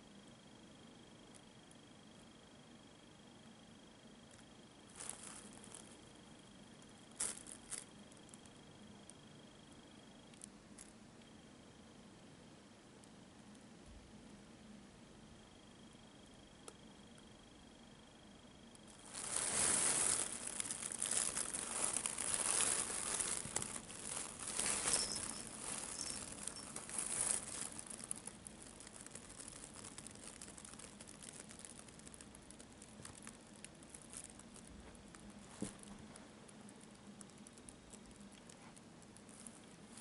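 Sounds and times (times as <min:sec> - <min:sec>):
plastic bag crinkling: 0:04.3 - 0:06.2, 0:06.8 - 0:08.6, 0:18.9 - 0:40.0.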